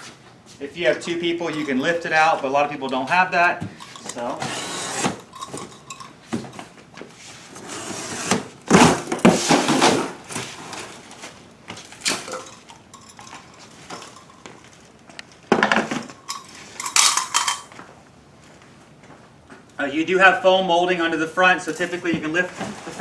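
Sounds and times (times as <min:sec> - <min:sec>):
cardboard box being cut: 0:04.4 - 0:05.2.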